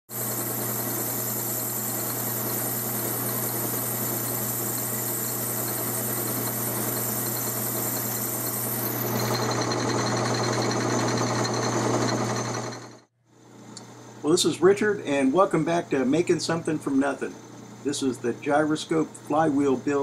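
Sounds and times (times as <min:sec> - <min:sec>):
metal lathe humming: 0:00.1 - 0:13.1.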